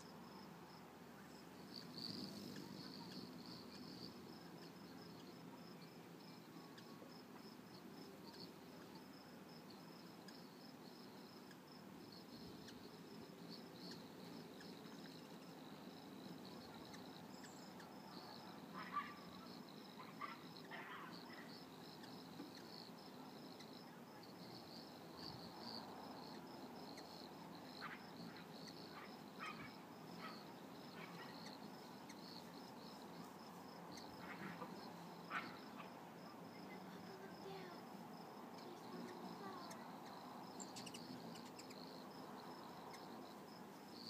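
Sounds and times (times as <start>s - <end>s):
crickets chirping: 0.0s - 44.0s
sharp insect calls: 0.0s - 44.0s.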